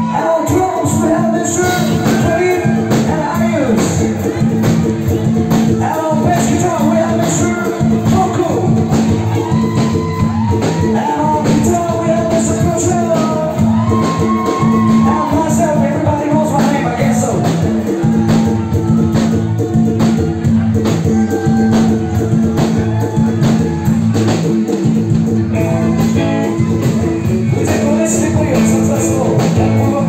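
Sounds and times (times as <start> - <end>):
singer's lead vocal: 0.0 - 4.6, 9.5 - 19.0, 25.6 - 30.0
steady drum beat: 0.0 - 30.0
sustained bass line: 0.0 - 30.0.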